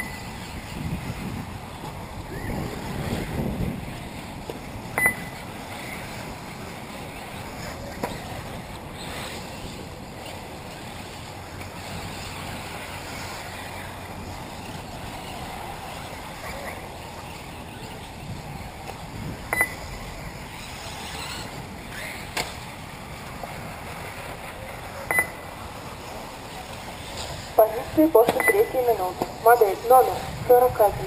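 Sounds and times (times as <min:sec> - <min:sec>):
wind on microphone: 0:00.0 - 0:25.0, 0:25.8 - 0:31.0
electric rc cars whirring: 0:00.0 - 0:28.0
short sharp beeps: 0:05.0 - 0:05.4, 0:19.5 - 0:19.8, 0:25.1 - 0:25.4, 0:28.2 - 0:28.8.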